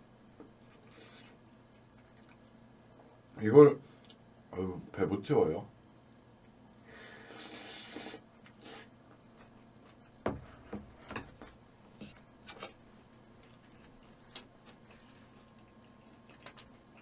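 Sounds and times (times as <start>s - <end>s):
wet chewing and mouth smacks: 0.6s - 2.5s, 12.2s - 17.0s
breathy slurp: 7.0s - 8.9s.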